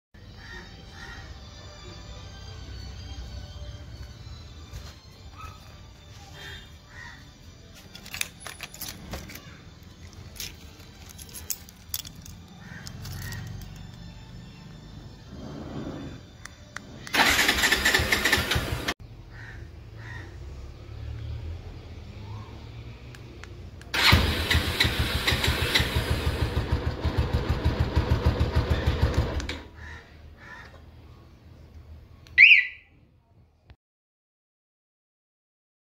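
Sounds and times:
keys jangling and clinking: 7.8 - 14.0
motorcycle engine idling: 17.1 - 18.9, 24.0 - 29.4
alarm siren chirp: 32.4 - 32.9.

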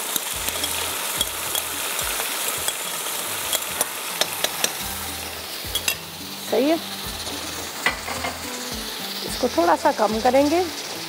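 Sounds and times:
chicken sizzling in a pan: 0.0 - 11.0
spoon clinking against pan: 0.4 - 4.9, 5.7 - 6.1.

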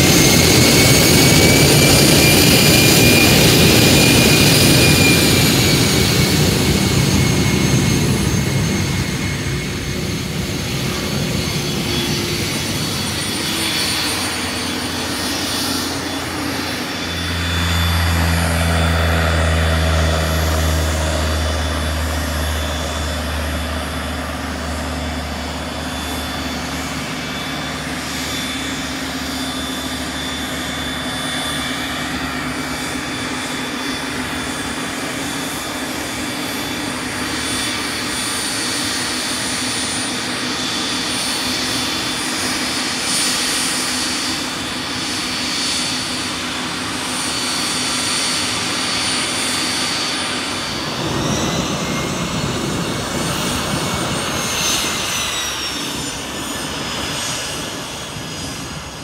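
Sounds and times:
exhaust rush: 0.0 - 59.0
high turbine whine: 0.0 - 59.0
deep rumble: 50.3 - 55.3.

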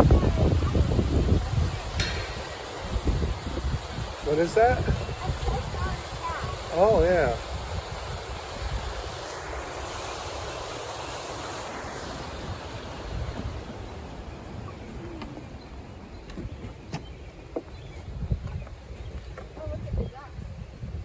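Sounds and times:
wind rumbling on microphone: 0.0 - 21.0
light knocks: 2.0 - 2.6.

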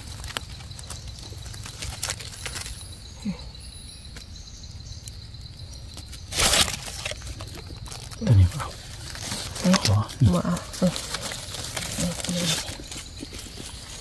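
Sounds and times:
dry leaves rustling: 0.0 - 3.1, 5.9 - 14.0.

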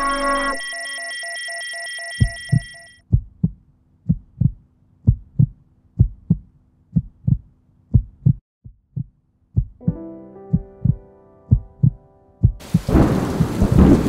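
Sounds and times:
high electronic tone with ticking: 0.0 - 3.0
heartbeat thumps: 2.2 - 14.0.

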